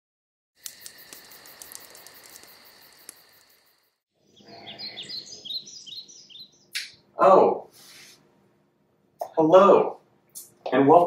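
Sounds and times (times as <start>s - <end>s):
crickets trilling: 0.6s - 6.6s
songbirds chirping: 0.8s - 7.6s.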